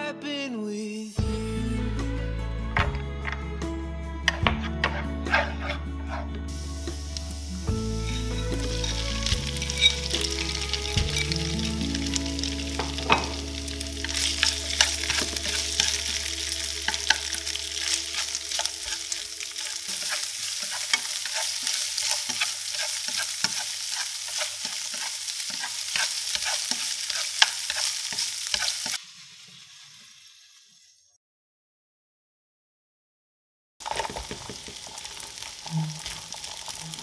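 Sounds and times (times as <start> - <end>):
spatula scraping and clicking pan: 4.3 - 6.3, 8.1 - 11.4, 12.0 - 16.3, 16.9 - 29.0, 33.8 - 37.0
shrimp sizzling in oil: 4.8 - 31.2, 33.8 - 37.0.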